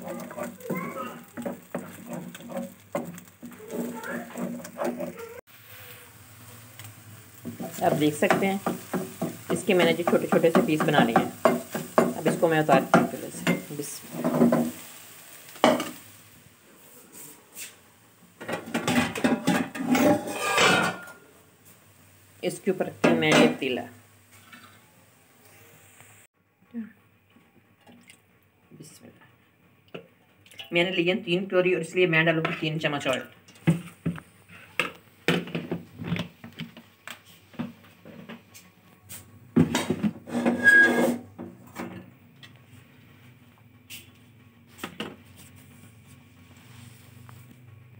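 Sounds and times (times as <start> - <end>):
cooking pot clicks and clatter: 0.0 - 5.2, 7.4 - 14.8
dishes clattering: 18.4 - 21.2.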